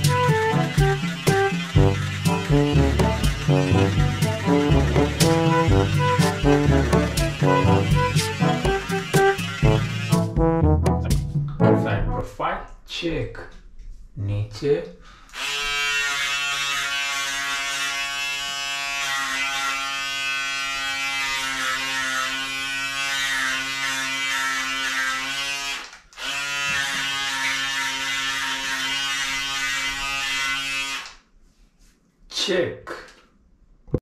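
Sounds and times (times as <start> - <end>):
electric shaver buzzing: 0.0 - 10.4, 15.3 - 31.2.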